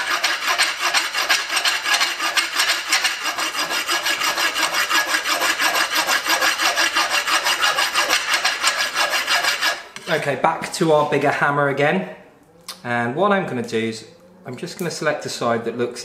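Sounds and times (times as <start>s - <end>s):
rasp filing hot steel: 0.0s - 10.2s.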